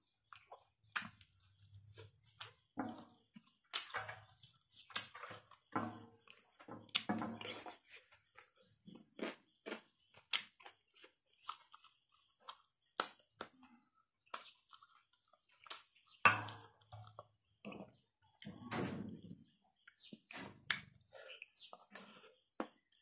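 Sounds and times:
chewing and mouth sounds: 3.3s - 16.2s.

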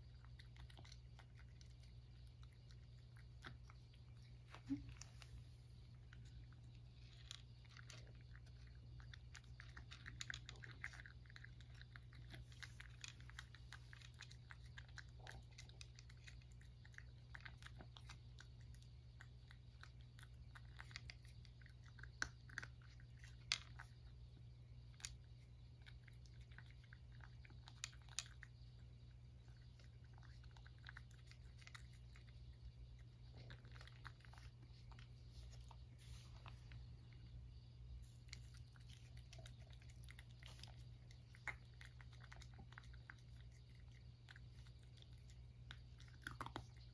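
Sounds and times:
cat crunching dry kibble: 0.0s - 37.0s, 38.0s - 46.9s.

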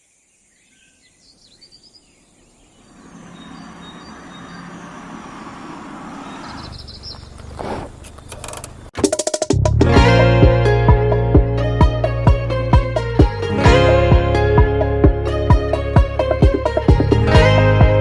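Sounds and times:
faint chirping: 0.0s - 8.9s
outdoor background noise: 0.0s - 9.3s
quick run of clicks: 6.7s - 9.4s
plucked guitar music: 9.6s - 18.0s.

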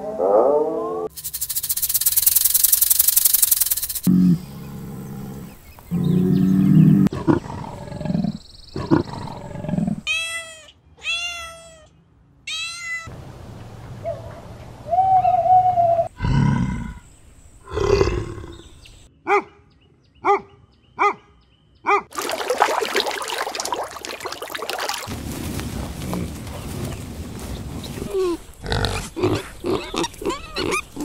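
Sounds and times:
owl calls and hoots: 14.0s - 16.2s.

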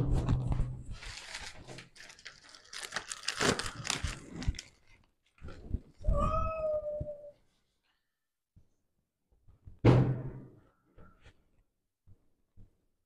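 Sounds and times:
cat yowling: 6.1s - 7.4s.

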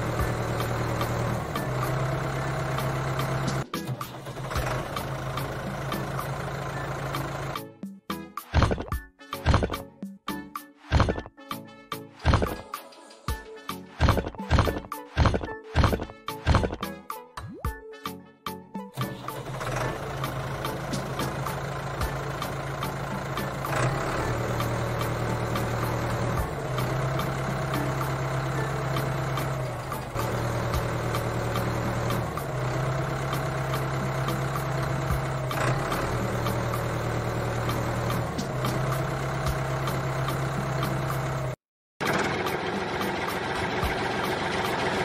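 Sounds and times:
tractor engine droning: 0.0s - 7.6s, 19.0s - 45.0s.

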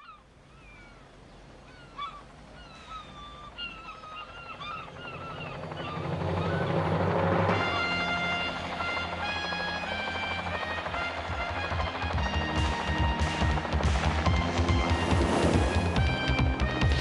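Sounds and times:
seagulls calling: 0.0s - 17.0s
music with sustained tones: 2.9s - 17.0s.

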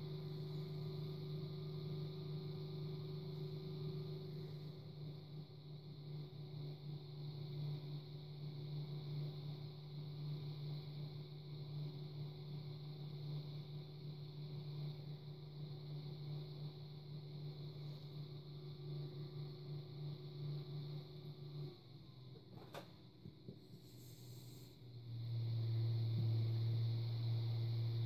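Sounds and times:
pottery wheel motor humming: 0.0s - 28.0s.

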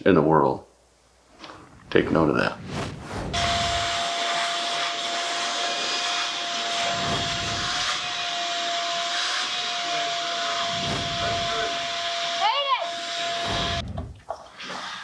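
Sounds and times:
vacuum motor whine: 3.4s - 13.8s.

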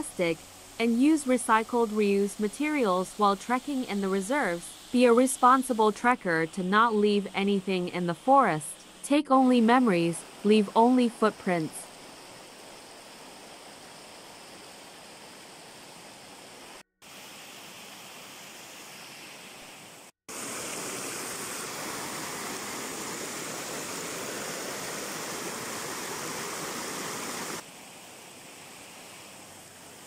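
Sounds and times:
stream water rushing: 20.3s - 30.0s.

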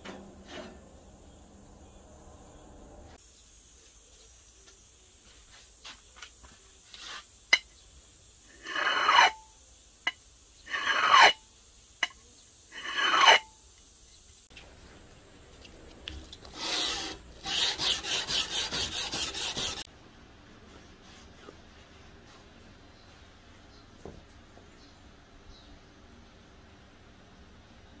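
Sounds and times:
steel scraping glass bottle: 8.5s - 9.4s, 10.7s - 11.4s, 12.7s - 13.5s.

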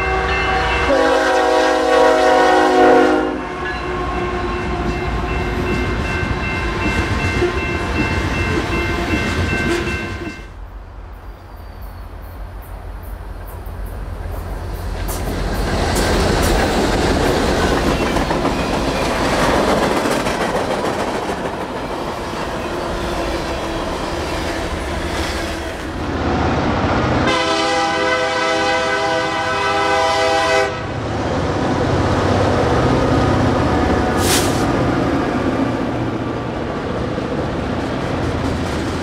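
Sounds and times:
train air horn: 0.0s - 5.1s, 27.2s - 31.0s
freight train rumbling: 0.0s - 39.0s
train wheels clattering: 13.4s - 25.8s, 37.7s - 39.0s.

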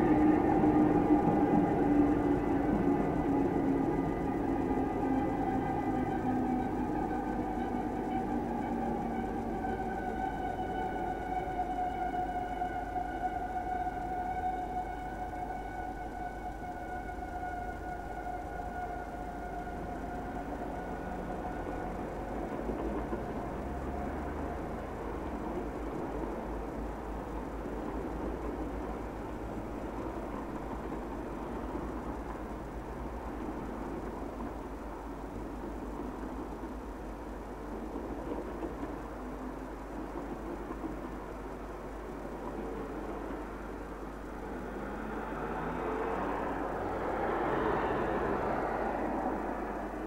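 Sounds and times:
constant low hum: 0.0s - 50.0s
train rumbling past: 0.0s - 50.0s
car passing close: 42.1s - 50.0s
cars driving past: 42.1s - 50.0s.

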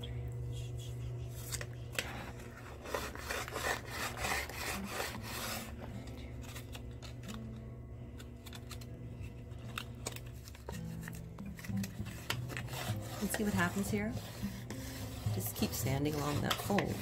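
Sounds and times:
plastic rasping on concrete: 1.1s - 6.8s, 10.1s - 17.0s
soft plastic rubbing: 8.4s - 17.0s.

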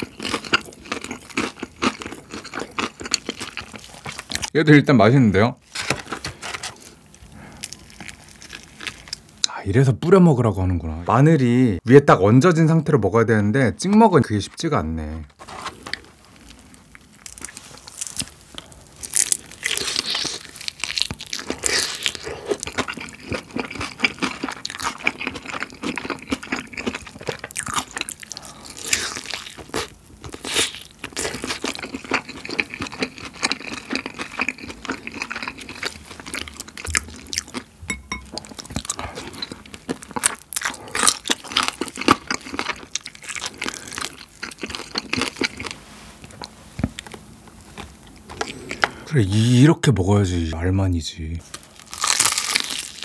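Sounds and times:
crunching fried chicken: 0.0s - 4.6s, 5.7s - 9.4s, 15.7s - 37.8s, 38.4s - 45.8s, 51.4s - 53.0s.

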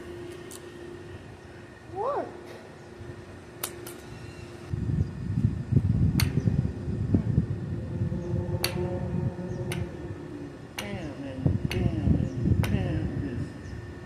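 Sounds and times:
low rumbling noise: 0.0s - 14.0s
steady hum: 0.0s - 14.0s.

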